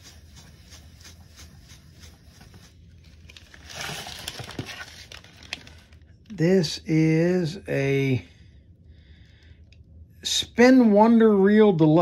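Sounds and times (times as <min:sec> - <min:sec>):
plastic bag crinkling: 0:02.6 - 0:06.2.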